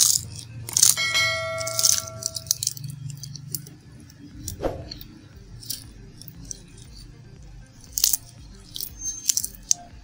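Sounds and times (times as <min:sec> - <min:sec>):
flaky pastry being torn: 0:00.0 - 0:01.1, 0:01.8 - 0:03.7, 0:07.8 - 0:09.9
bell-like ding: 0:00.9 - 0:02.6.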